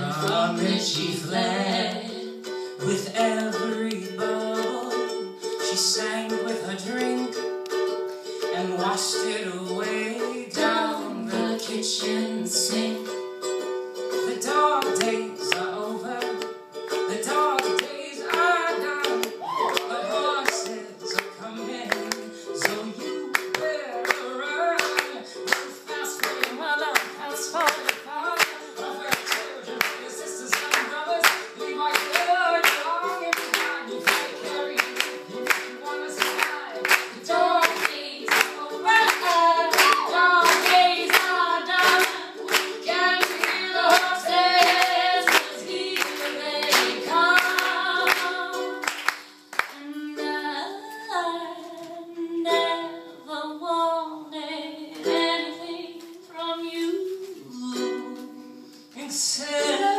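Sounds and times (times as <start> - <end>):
man and woman singing: 0.0 - 7.6, 8.4 - 58.4, 59.0 - 59.9
strummed string instrument: 0.0 - 53.3
rhythmic hand clapping: 14.8 - 49.9.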